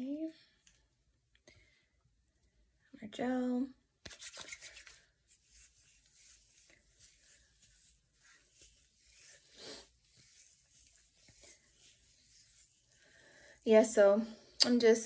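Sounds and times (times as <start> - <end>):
fingers rustling through hair: 4.0 - 14.1.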